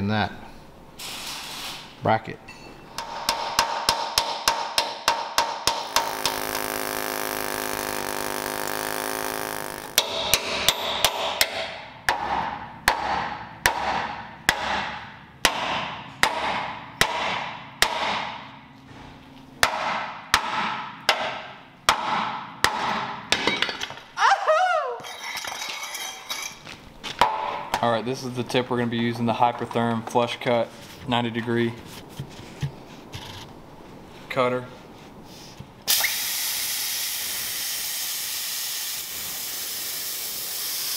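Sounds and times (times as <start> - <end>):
hammer striking steel: 2.5 - 18.5, 19.6 - 23.8
air chisel hammering on steel: 3.0 - 18.4
metal piece clattering: 25.1 - 26.7.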